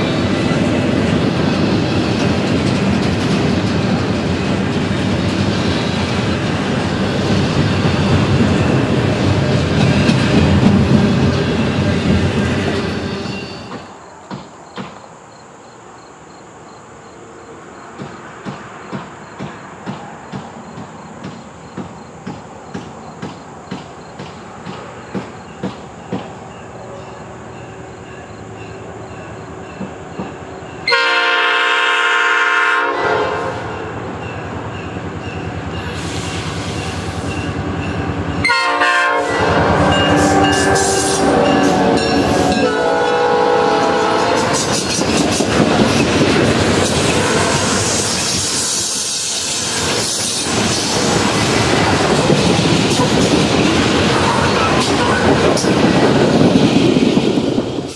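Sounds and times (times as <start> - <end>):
train wheels clicking over rail joints: 0.0 - 15.2, 17.8 - 30.9, 39.9 - 57.9
train horn blasts: 30.8 - 34.0, 38.4 - 44.9, 47.0 - 48.1.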